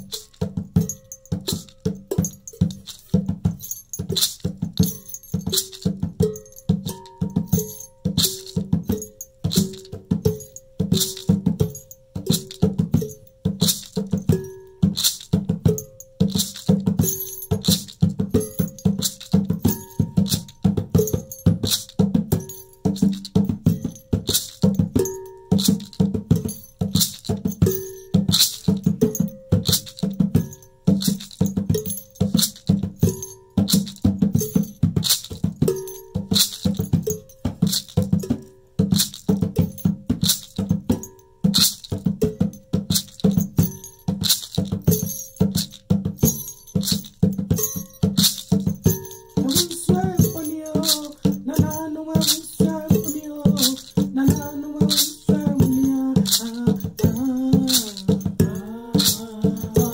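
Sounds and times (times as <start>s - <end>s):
hand drum beating: 0.0s - 59.9s
rattling shaker: 0.0s - 59.9s
person singing: 49.4s - 59.9s.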